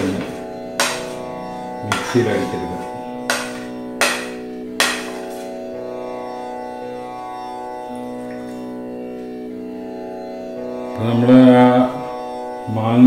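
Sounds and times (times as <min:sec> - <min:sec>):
plucked strings: 0:00.0 - 0:12.7
steady drone: 0:00.0 - 0:13.0
sharp strike: 0:00.8 - 0:05.5.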